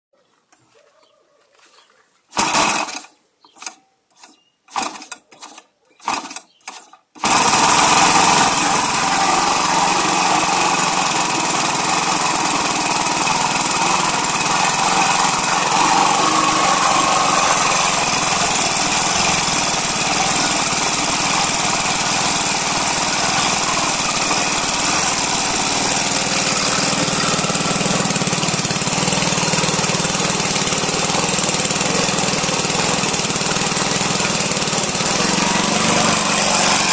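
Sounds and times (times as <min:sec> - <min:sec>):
model aircraft engine running: 0:02.4 - 0:03.0, 0:07.2 - 0:36.9.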